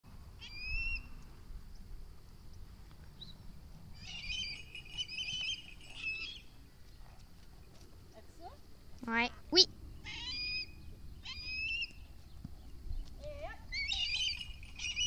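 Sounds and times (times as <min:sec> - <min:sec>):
wind rumble on microphone: 0:12.0 - 0:14.8.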